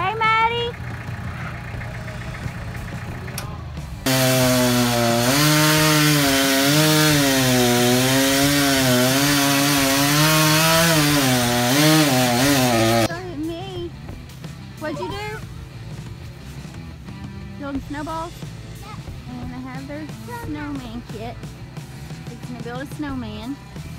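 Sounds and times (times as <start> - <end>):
tractor engine idling: 0.0 - 4.4
chainsaw cutting wood: 4.0 - 13.1.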